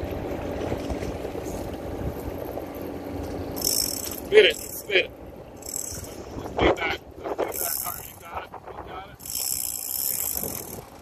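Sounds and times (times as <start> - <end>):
fishing reel ratcheting whir: 3.5 - 4.9, 5.6 - 6.2, 7.4 - 8.4, 9.1 - 11.0.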